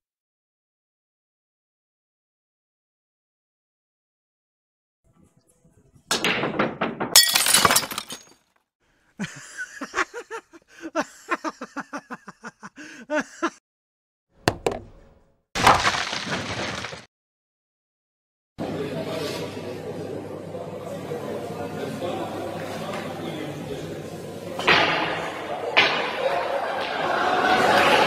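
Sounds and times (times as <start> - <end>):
glass lampshade shattering: 7.2 - 8.4
glass shards clattering on table: 7.2 - 8.4
young men laughing: 9.2 - 13.6, 26.2 - 28.0.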